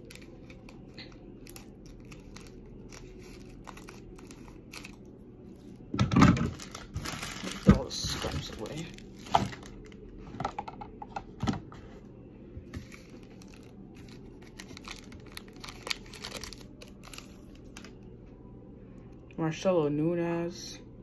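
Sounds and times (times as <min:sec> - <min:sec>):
wrapper crinkling and tearing: 0:00.0 - 0:10.0, 0:12.8 - 0:18.0.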